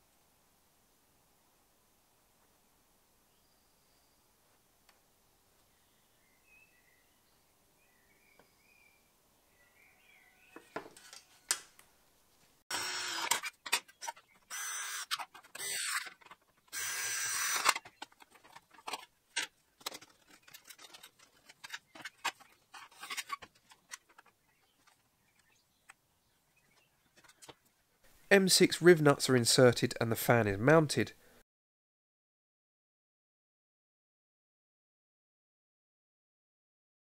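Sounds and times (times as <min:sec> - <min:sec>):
power drill boring metal: 0:12.7 - 0:17.9
metal parts clicking and knocking: 0:13.2 - 0:25.5.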